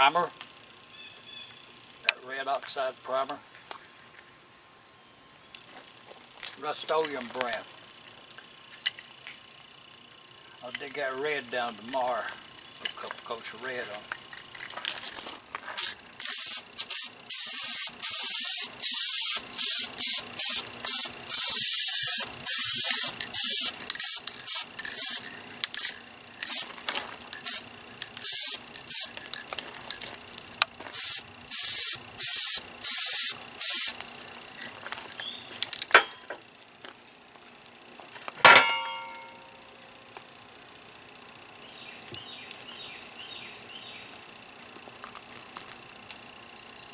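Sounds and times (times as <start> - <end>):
aerosol spray can hissing: 15.8 - 25.2, 25.8 - 26.8, 27.4 - 29.2, 30.9 - 34.0
metal clank: 35.6 - 36.4, 38.4 - 39.6.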